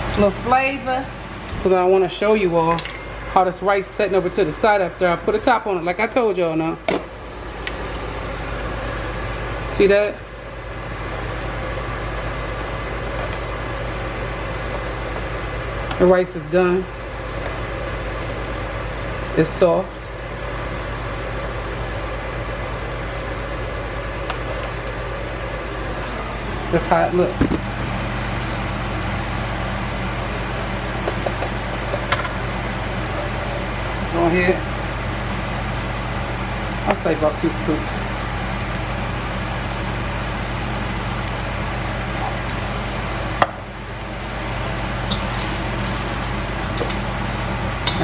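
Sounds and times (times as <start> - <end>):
fan humming and hissing: 0.0 - 48.0.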